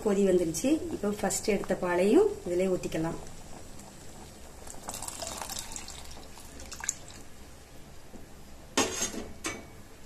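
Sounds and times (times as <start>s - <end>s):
boiling liquid bubbling: 0.0s - 8.8s
liquid pouring and splashing: 3.4s - 7.2s.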